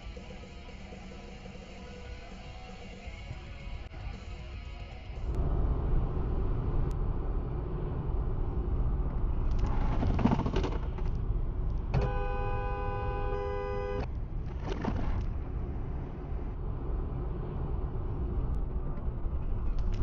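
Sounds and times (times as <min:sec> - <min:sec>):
car road and engine rumble: 0:00.0 - 0:20.0
car horn held: 0:12.0 - 0:14.1.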